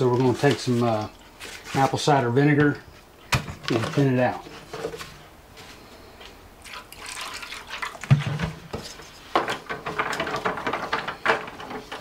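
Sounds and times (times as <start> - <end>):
wooden spoon scraping foil pan: 0.0 - 2.2
liquid pouring into foil pan: 6.6 - 8.5.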